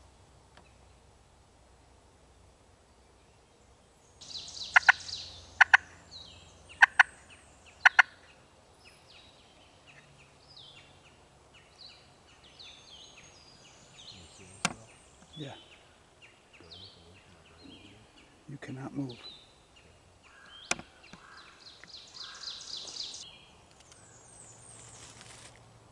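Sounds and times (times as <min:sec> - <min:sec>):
songbirds chirping: 0:00.0 - 0:25.9
turkey rattling call: 0:04.2 - 0:06.0, 0:06.7 - 0:08.3, 0:20.3 - 0:23.2
turkey clucks: 0:04.7 - 0:05.9, 0:06.7 - 0:07.2, 0:07.8 - 0:08.3.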